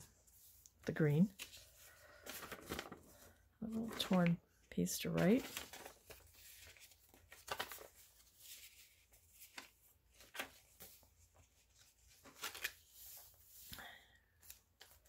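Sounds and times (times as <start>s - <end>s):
paper pages rustling and tapping: 1.4s - 4.4s, 5.0s - 13.8s.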